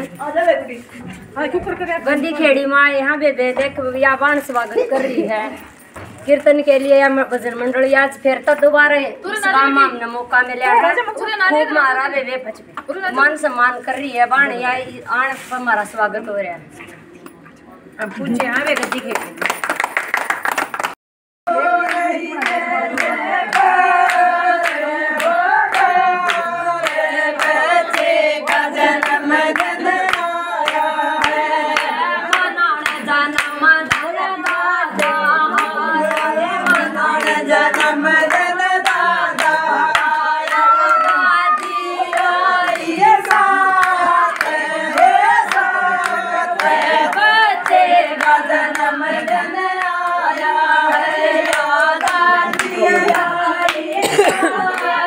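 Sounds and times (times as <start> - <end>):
women singing devotional song: 0.0 - 16.6, 21.5 - 55.0
rhythmic hand clapping: 18.3 - 55.0.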